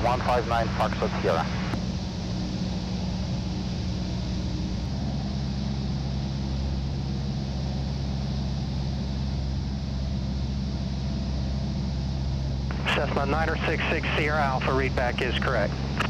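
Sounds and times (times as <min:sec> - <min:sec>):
propeller plane engine droning: 0:00.0 - 0:16.0.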